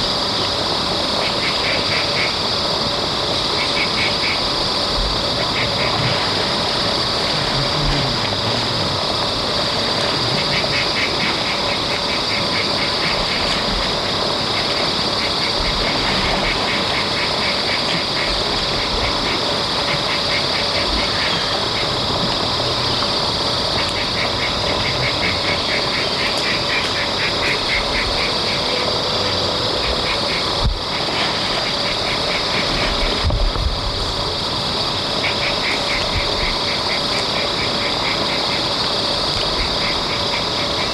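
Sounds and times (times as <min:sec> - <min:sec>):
steady hiss and hum: 0:00.0 - 0:40.9
rapid pulsing animal calls: 0:09.9 - 0:33.0.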